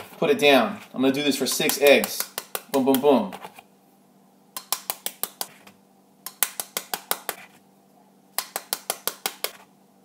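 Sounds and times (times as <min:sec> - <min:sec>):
eggshells tapped: 0:01.5 - 0:03.1, 0:04.6 - 0:05.6, 0:06.3 - 0:07.5, 0:08.4 - 0:09.6.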